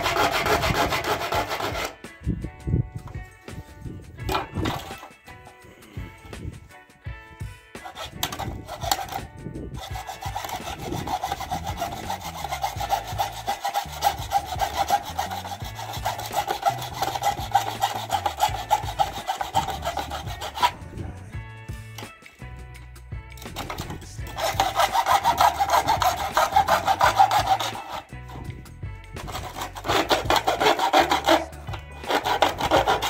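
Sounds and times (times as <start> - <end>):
hand saw cutting plastic: 0.0 - 2.0, 4.2 - 5.2, 7.8 - 20.8, 23.4 - 33.0.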